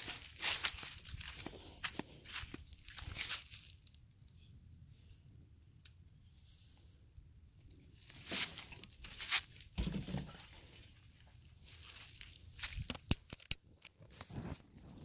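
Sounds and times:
dry leaves rustling and crunching: 0:00.0 - 0:04.0, 0:08.0 - 0:09.8, 0:11.6 - 0:12.9.

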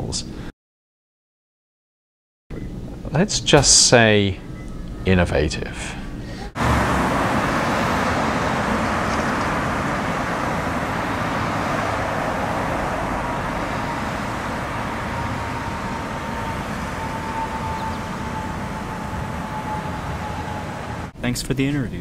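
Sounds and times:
cars and trucks driving past: 0:06.0 - 0:21.2.

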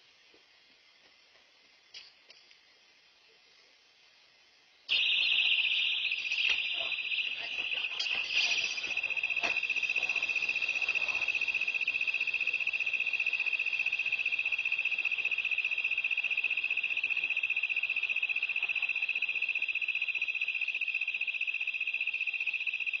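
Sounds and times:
siren alarm high pulsing tone: 0:04.9 - 0:23.0.

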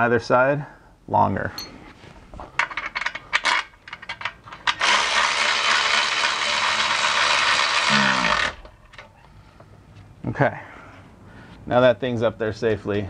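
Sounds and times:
electric ratchet spinning: 0:04.6 - 0:08.7.

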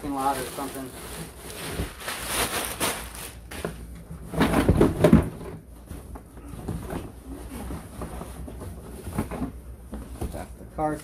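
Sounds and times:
plastic packaging crinkling: 0:00.0 - 0:03.7
knocks and scraping on cardboard box: 0:04.2 - 0:10.4.

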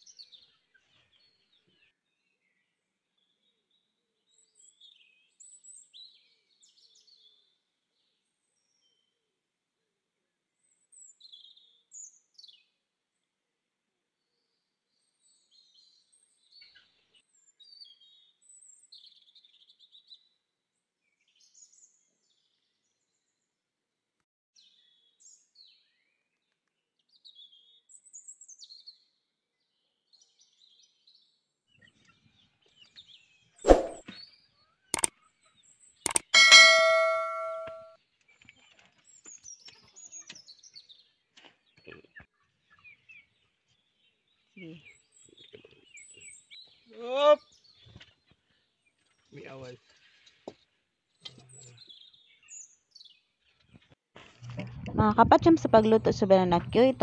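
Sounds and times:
sharp clicks: 0:36.1 - 0:37.8
bell-like ding: 0:36.1 - 0:37.9.

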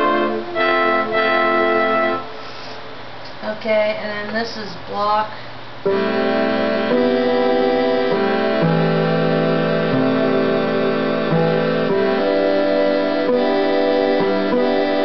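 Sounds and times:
organ playing chords: 0:00.0 - 0:02.6, 0:05.8 - 0:15.0.

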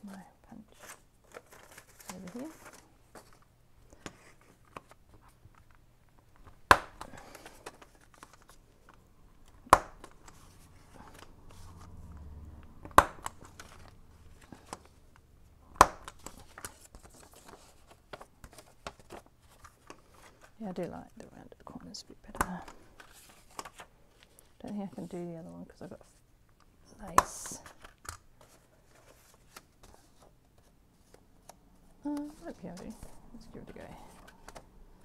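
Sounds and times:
paper rustling: 0:00.6 - 0:09.0, 0:15.9 - 0:20.6, 0:22.3 - 0:25.3, 0:27.1 - 0:34.7.

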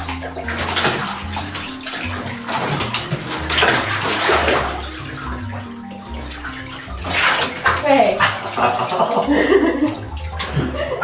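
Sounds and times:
background music: 0:00.0 - 0:11.0
water splashing in bathtub: 0:00.0 - 0:11.0.

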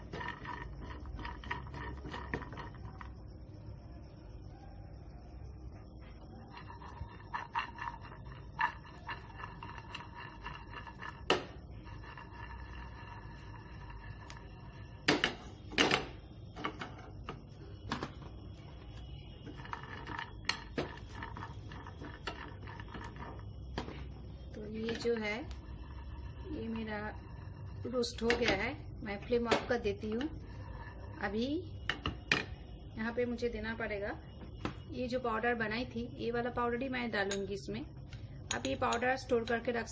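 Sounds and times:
steady low hum: 0:00.0 - 0:39.9
nuts frying crackle: 0:06.6 - 0:16.0, 0:17.5 - 0:32.4
spatula knocking and scraping pan: 0:19.4 - 0:28.7.

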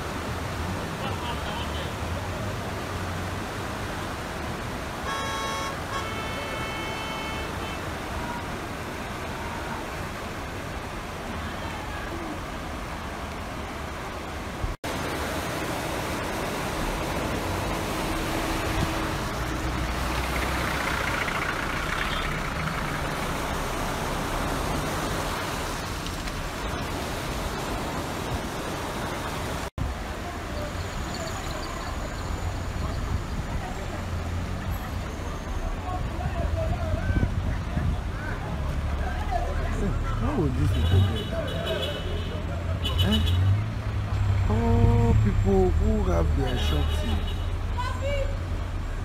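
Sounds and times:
floodwater rushing: 0:00.0 - 0:49.0
vehicle horn: 0:05.0 - 0:08.4, 0:40.6 - 0:43.6, 0:46.5 - 0:47.6.

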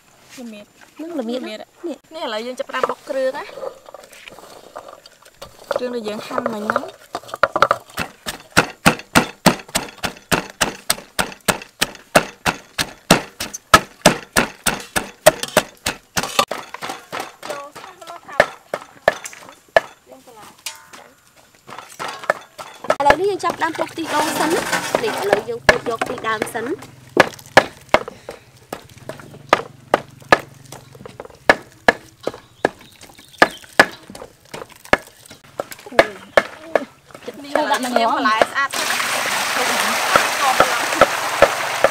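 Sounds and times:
pestle pounding in a mortar: 0:05.7 - 0:20.0, 0:21.6 - 0:38.7, 0:40.1 - 0:41.9.

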